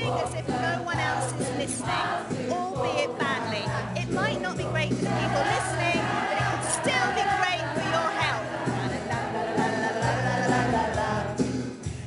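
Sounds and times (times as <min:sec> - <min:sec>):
woman singing close: 0:00.0 - 0:11.2
choir singing: 0:00.0 - 0:11.6.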